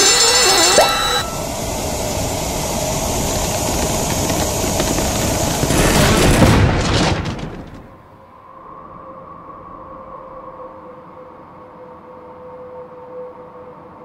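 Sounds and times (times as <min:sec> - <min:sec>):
sharp cracks: 0:02.7 - 0:08.0.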